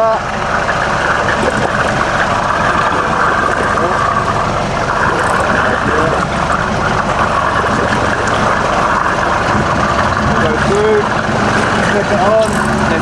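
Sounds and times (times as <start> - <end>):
boat engine running: 0.0 - 13.0
rushing water: 0.0 - 13.0.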